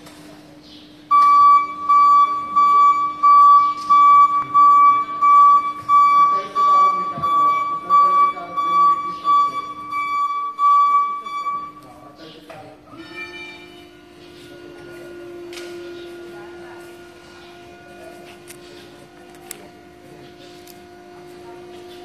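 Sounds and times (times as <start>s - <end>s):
steady low hum: 0.0s - 22.0s
high warning beeps: 1.1s - 12.1s.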